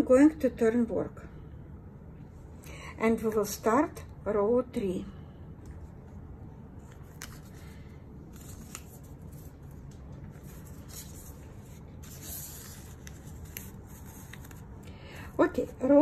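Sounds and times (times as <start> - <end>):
low steady hum: 0.0 - 16.0
paper rustling: 6.8 - 14.8.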